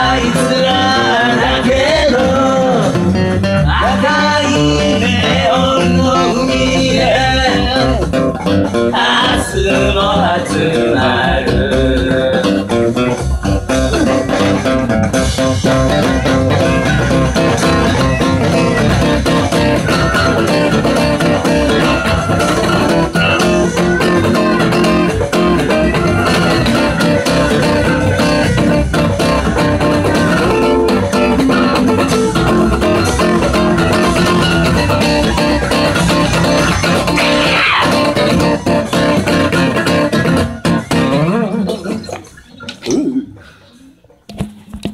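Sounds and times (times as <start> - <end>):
man singing: 0.0 - 8.2, 8.9 - 13.0, 17.6 - 31.3
acoustic guitar strummed hard: 0.0 - 42.1.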